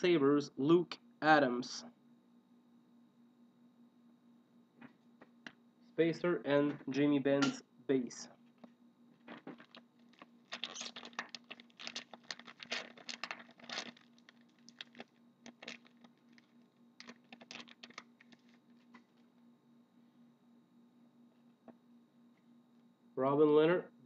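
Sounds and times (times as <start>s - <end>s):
wrapper tearing and crinkling: 9.5s - 19.0s.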